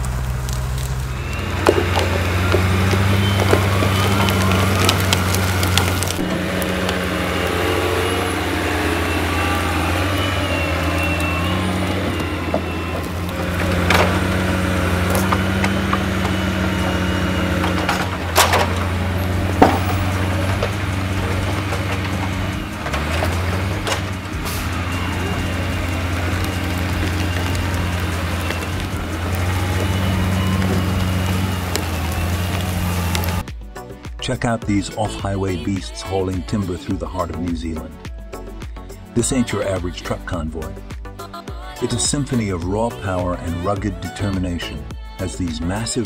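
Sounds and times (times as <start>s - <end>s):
diesel engine running: 0.0s - 46.0s
logs knocking together: 0.3s - 33.5s.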